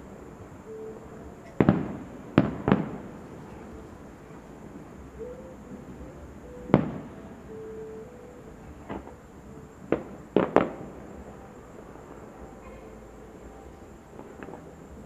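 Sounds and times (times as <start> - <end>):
fireworks shells bursting: 1.4 - 6.0, 9.8 - 13.0.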